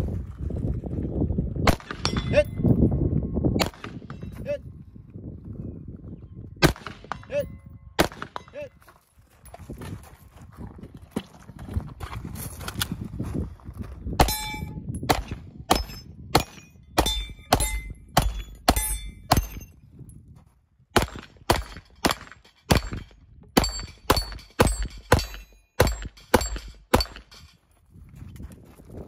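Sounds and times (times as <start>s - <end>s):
rapid pistol shots: 6.6s - 7.2s, 8.0s - 8.4s, 21.0s - 27.3s
steel targets ringing: 14.2s - 14.9s, 15.7s - 19.7s, 21.6s - 27.6s.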